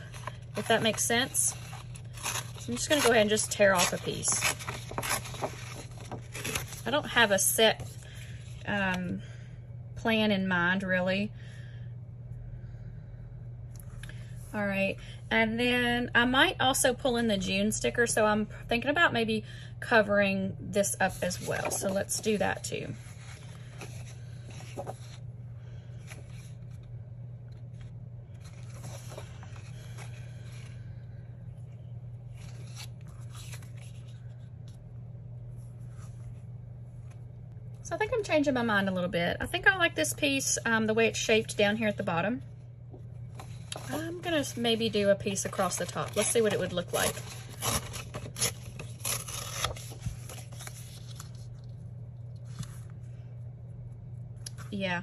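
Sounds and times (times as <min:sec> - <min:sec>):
paper rustling and scraping: 0:00.0 - 0:08.6, 0:21.0 - 0:25.2, 0:27.7 - 0:30.8, 0:32.3 - 0:34.2, 0:43.4 - 0:51.7
paper tearing: 0:00.1 - 0:06.9, 0:45.7 - 0:51.3.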